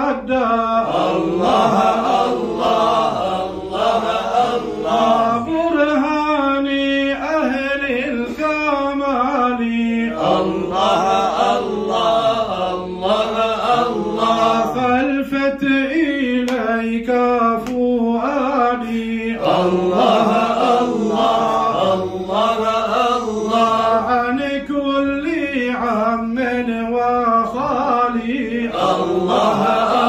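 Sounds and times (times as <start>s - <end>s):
man singing unaccompanied: 0.0s - 30.0s.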